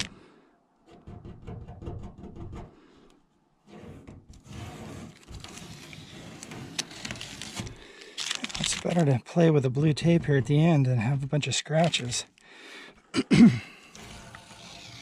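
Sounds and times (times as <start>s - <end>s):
masking tape peeling and crumpling: 5.0s - 9.2s, 14.0s - 15.0s.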